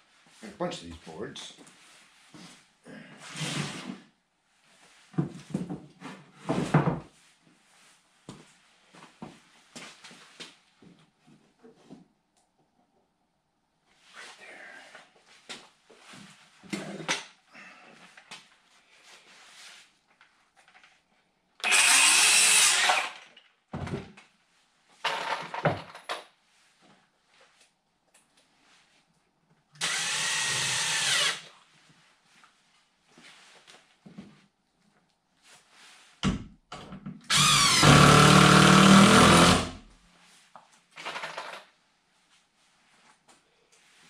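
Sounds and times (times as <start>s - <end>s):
handheld power tool running: 21.6s - 23.2s, 29.8s - 31.5s, 37.3s - 39.8s.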